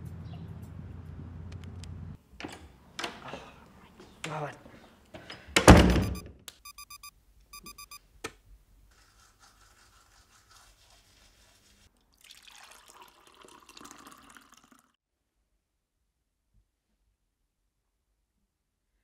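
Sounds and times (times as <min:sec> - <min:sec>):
electronic beeps: 0:05.9 - 0:08.0
toothbrush scrubbing teeth: 0:08.9 - 0:11.9.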